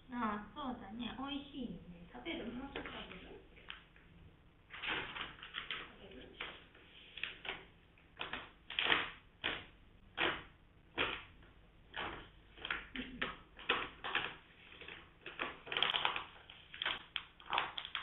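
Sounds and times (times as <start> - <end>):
dog crunching a treat: 11.9 - 18.0.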